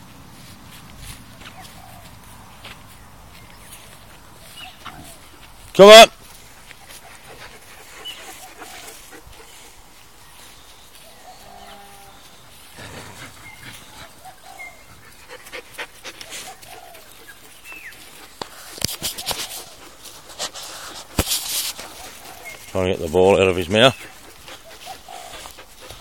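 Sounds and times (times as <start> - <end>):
faint animal calls: 6.8 - 20.8.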